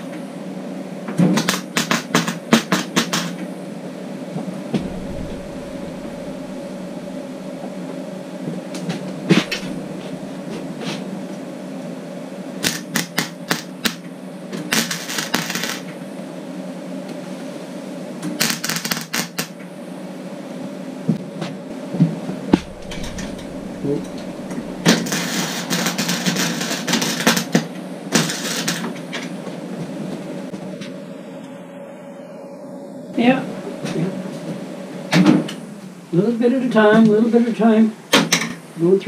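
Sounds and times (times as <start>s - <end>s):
steady low hum: 4.8s - 12.6s, 22.3s - 26.3s.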